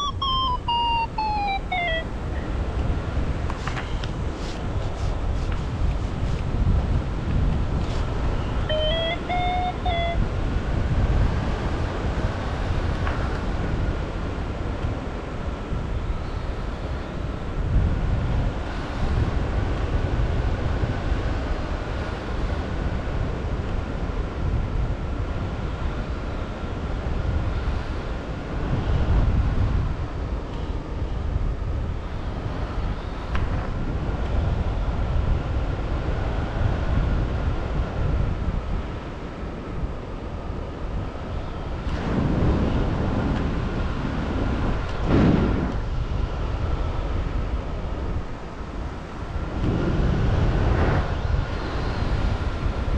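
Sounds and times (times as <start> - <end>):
faint high tone: 0.0 - 2.5, 8.4 - 10.3
wind buffeting microphone: 0.0 - 52.9.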